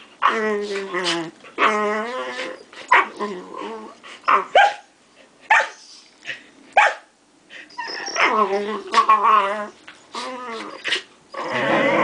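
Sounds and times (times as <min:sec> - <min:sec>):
puppies barking and yipping: 0:07.7 - 0:09.4.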